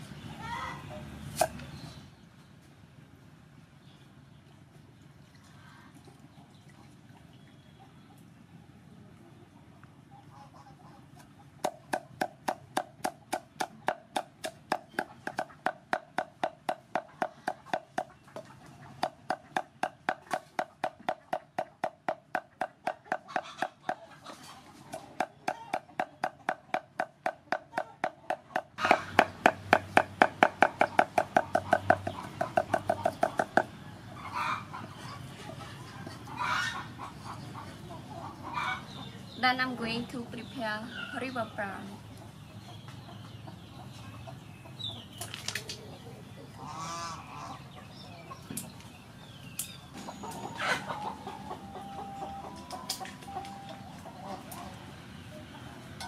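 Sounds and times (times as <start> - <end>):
cleaver chopping on wooden board: 11.6 - 18.1, 19.0 - 24.0, 25.2 - 33.7.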